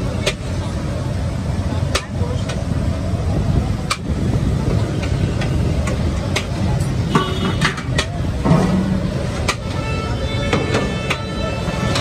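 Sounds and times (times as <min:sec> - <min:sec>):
traffic rumble: 0:00.0 - 0:12.0
sharp clicks and knocks: 0:03.8 - 0:04.1, 0:04.9 - 0:09.7.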